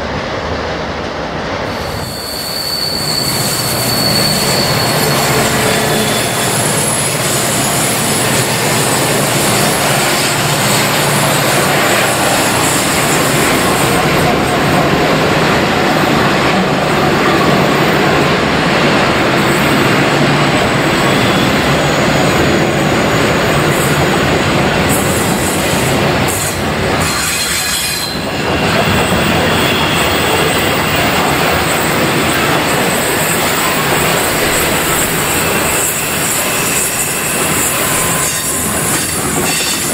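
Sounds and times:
diesel locomotive engine drone: 0:00.0 - 0:39.9
train wheels squealing: 0:01.7 - 0:14.3, 0:19.2 - 0:22.6, 0:24.9 - 0:39.9.

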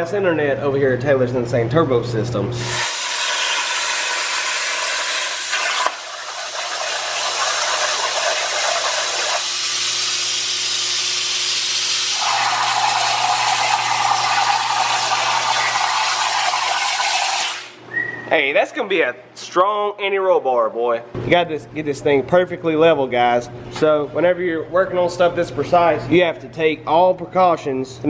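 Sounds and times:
plasma cutter hissing: 0:02.6 - 0:14.0, 0:14.8 - 0:17.8.

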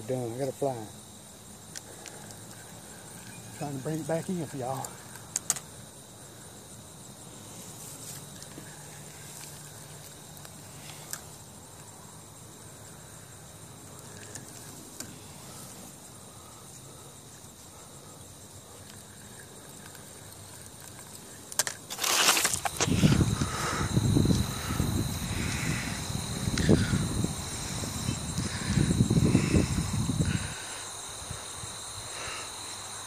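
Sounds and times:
rough rumbling on microphone: 0:22.7 - 0:30.6.

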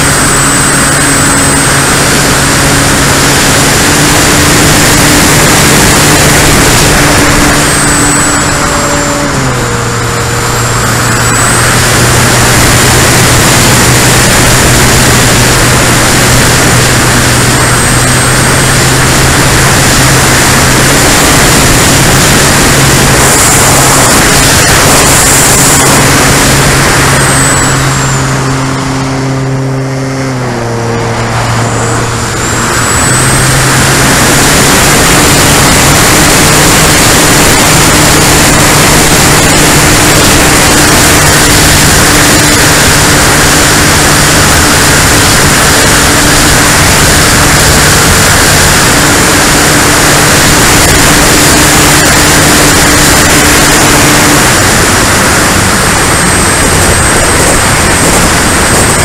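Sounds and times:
model airplane motor and propeller: 0:00.0 - 0:59.0
wind rush on microphone: 0:00.0 - 0:59.0.

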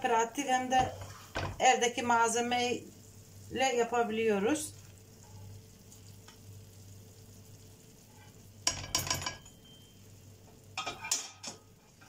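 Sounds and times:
spatula scraping a frying pan: 0:08.0 - 0:08.9, 0:10.8 - 0:12.0.

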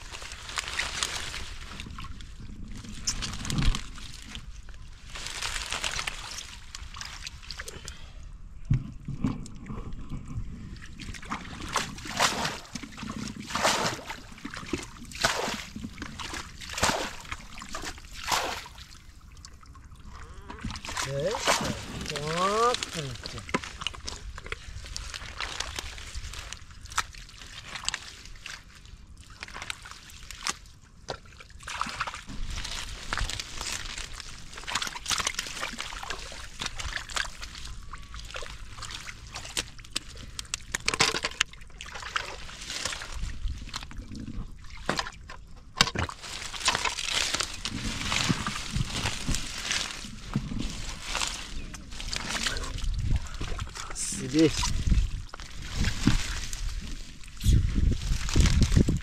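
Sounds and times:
mud sloshing and squelching: 0:00.0 - 0:59.0
short sharp splashes and clicks: 0:11.0 - 0:19.7, 0:20.7 - 0:28.6.

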